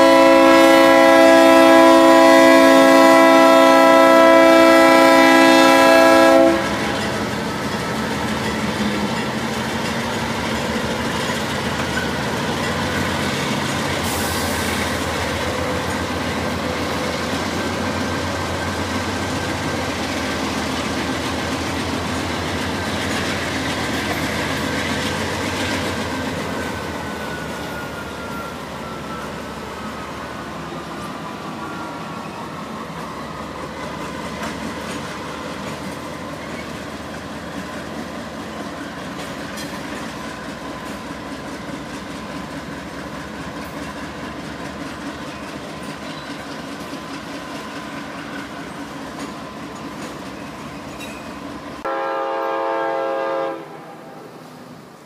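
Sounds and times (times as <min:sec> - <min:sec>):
locomotive air horn chord: 0:00.0 - 0:07.0, 0:51.8 - 0:54.4
train rumbling past on rails: 0:00.0 - 0:55.0.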